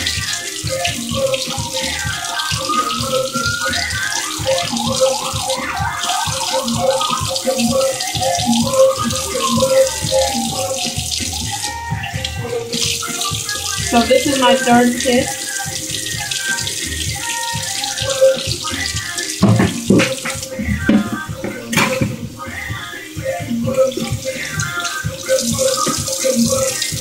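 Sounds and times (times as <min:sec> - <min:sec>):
music playing: 0:00.0 - 0:27.0
tap running into sink: 0:16.0 - 0:22.3, 0:23.8 - 0:26.9.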